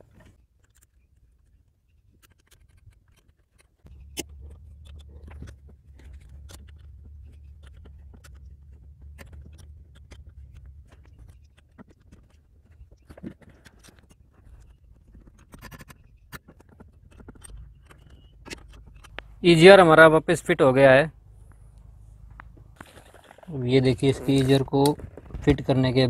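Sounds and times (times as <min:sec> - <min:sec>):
low steady rumble: 0:03.9 - 0:13.0, 0:17.5 - 0:24.5.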